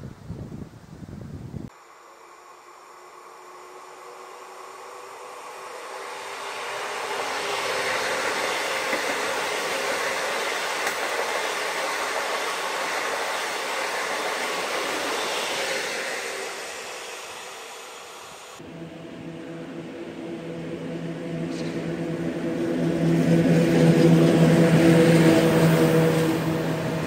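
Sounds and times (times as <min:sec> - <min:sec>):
train wheel and rail noise: 0:01.7 - 0:27.0.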